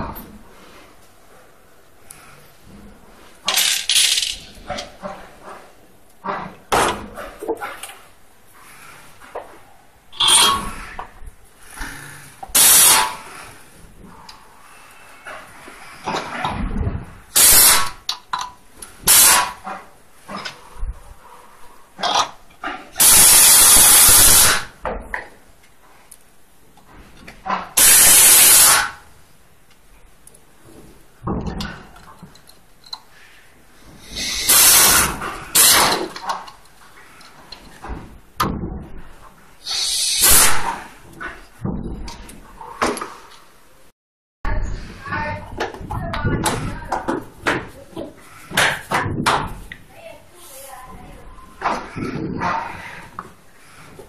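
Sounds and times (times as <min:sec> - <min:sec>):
metal parts clinking and scraping: 0:03.4 - 0:04.9
pneumatic screwdriver running: 0:12.6 - 0:13.2, 0:17.4 - 0:18.0, 0:23.0 - 0:24.7, 0:27.8 - 0:28.9, 0:34.1 - 0:36.0.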